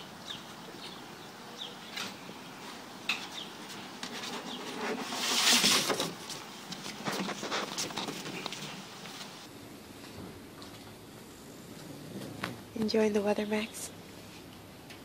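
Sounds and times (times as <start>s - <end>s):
birds chirping: 0.0s - 5.1s, 12.8s - 14.0s
puppy sliding down plastic slide: 4.1s - 6.3s.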